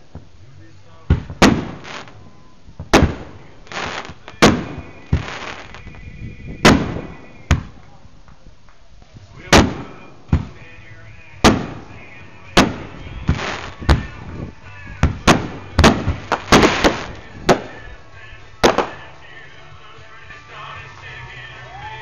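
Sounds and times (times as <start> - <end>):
fireworks bangs and crackles: 1.0 - 10.8, 11.4 - 18.0, 18.6 - 19.2.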